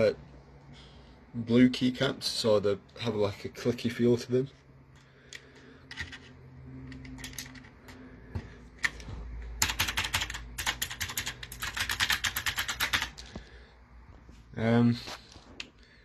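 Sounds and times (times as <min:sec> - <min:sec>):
clicky mechanical keyboard typing: 0:09.6 - 0:13.2.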